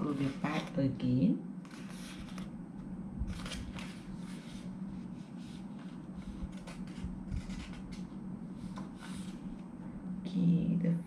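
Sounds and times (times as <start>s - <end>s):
low steady hum: 0.0s - 11.0s
paper pages rustling: 1.7s - 2.5s, 3.3s - 9.6s.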